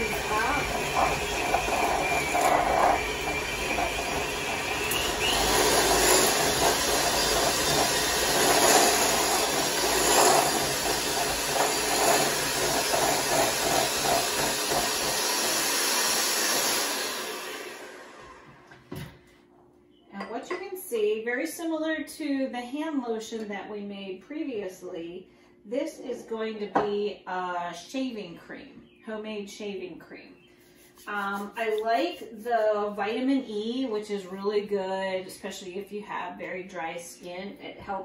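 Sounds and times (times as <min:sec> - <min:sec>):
electric hand mixer running: 0:00.0 - 0:18.7.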